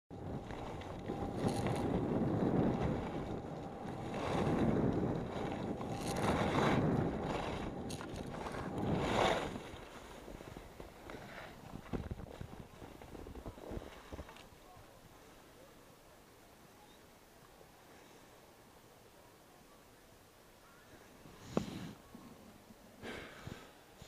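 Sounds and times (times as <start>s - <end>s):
wind rushing on microphone: 0.1s - 15.0s
skis scraping over snow: 0.1s - 15.4s, 21.2s - 22.3s.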